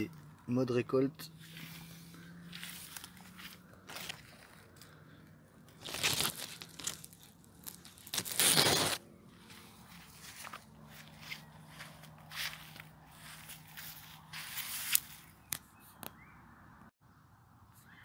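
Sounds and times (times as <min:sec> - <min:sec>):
rustling leaves and dry straw: 0:01.4 - 0:05.0, 0:05.6 - 0:15.6.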